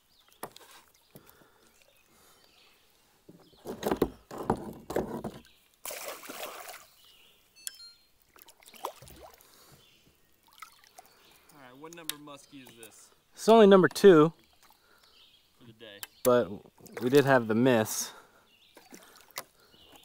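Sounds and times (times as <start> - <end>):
fish thrashing and splashing: 5.8 - 7.0, 8.4 - 9.4.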